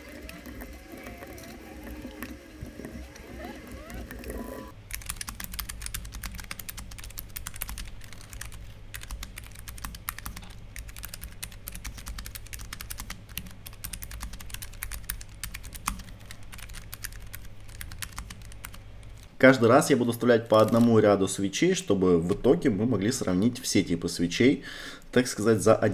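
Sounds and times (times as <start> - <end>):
fast typing on mechanical keyboard: 4.9 - 18.8.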